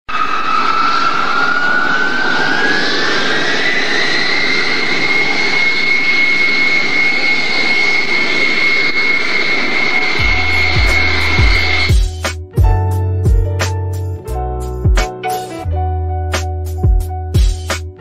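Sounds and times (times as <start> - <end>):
jet engines whining: 0.1 - 12.3.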